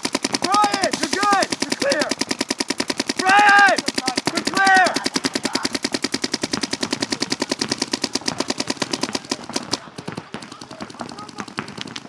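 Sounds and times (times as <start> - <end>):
paintball markers firing: 0.0 - 12.0.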